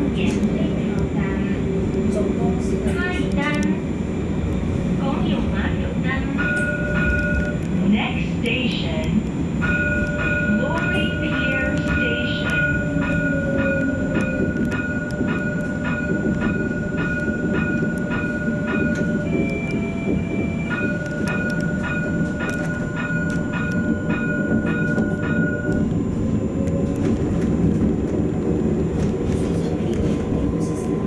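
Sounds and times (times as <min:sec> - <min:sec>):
tram running rumble: 0:00.0 - 0:31.0
tram warning bell ringing: 0:00.0 - 0:31.0.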